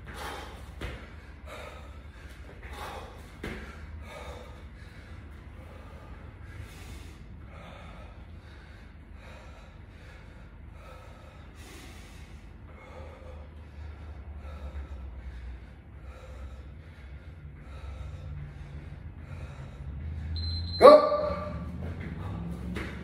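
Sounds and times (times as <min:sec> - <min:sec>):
man breathing hard: 0:00.0 - 0:20.4, 0:21.6 - 0:22.9.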